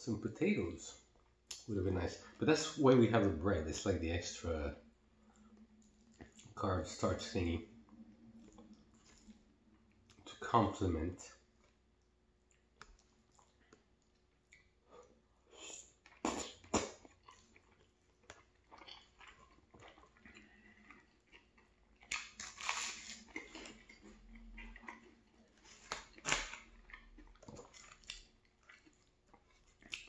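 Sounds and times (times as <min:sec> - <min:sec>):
chewing and biting: 0:16.0 - 0:30.0
toast crunching: 0:16.0 - 0:30.0.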